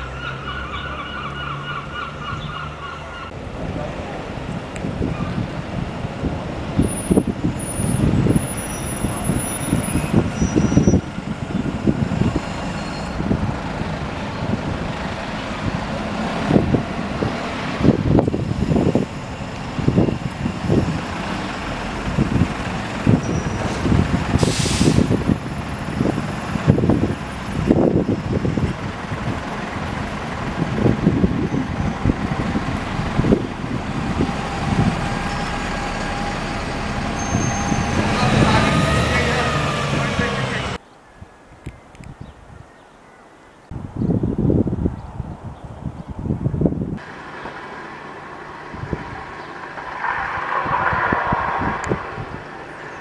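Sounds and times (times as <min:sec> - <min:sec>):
diesel engine running: 0:04.1 - 0:40.8
compressed air hiss: 0:24.4 - 0:25.1.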